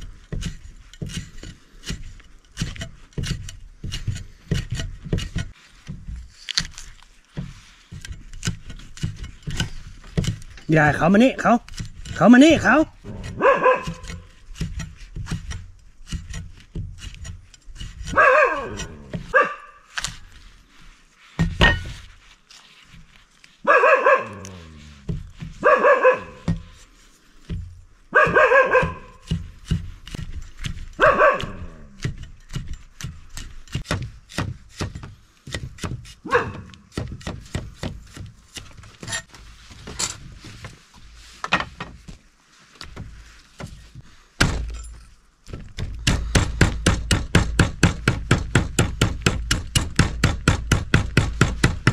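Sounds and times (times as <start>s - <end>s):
knife chopping on wooden block: 0.0s - 20.2s, 25.0s - 26.8s, 27.4s - 39.2s, 45.6s - 51.9s
dog barking loudly: 13.2s - 14.2s, 18.1s - 19.8s, 23.6s - 24.5s, 25.6s - 26.6s, 28.1s - 29.2s, 31.0s - 31.8s, 36.2s - 36.7s.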